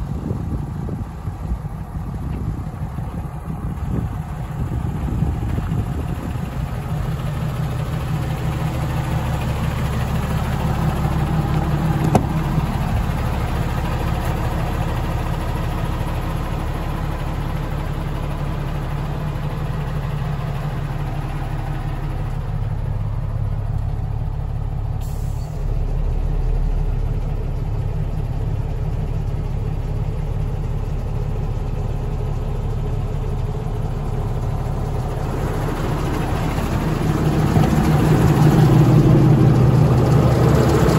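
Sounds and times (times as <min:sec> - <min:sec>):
truck engine idling: 0:00.0 - 0:40.9.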